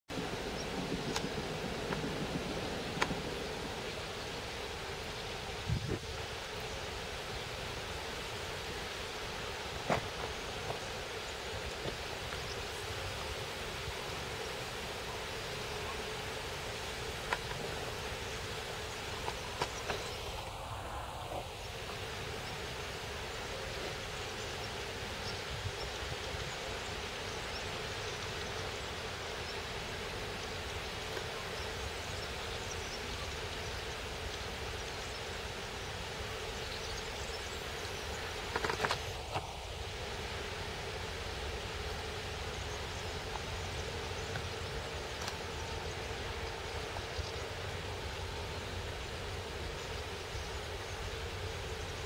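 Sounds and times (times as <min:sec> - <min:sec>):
wind: 0:00.0 - 0:52.0
wind buffeting microphone: 0:00.1 - 0:06.4
distant diesel locomotive drone: 0:00.1 - 0:38.6
rustling grass: 0:00.1 - 0:52.0.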